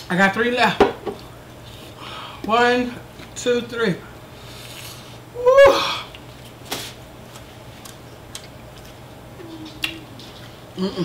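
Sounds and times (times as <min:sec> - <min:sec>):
woman's wordless vocal cry: 0:05.4 - 0:06.1.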